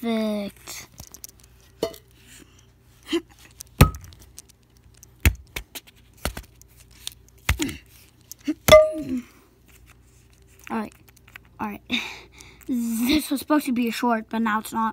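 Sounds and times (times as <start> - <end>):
plastic bits clicking: 0.9 - 1.5
plastic pieces struck on floor: 3.7 - 4.5.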